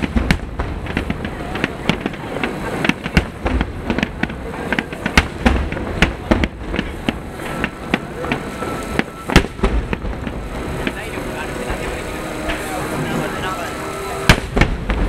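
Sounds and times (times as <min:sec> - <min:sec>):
firework shells bursting: 0:00.0 - 0:13.3, 0:14.2 - 0:15.0
low rumble: 0:05.4 - 0:15.0.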